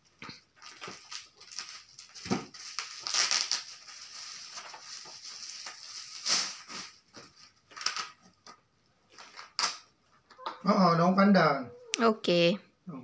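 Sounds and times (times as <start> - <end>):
plastic wrapping crinkling: 0.5 - 9.9.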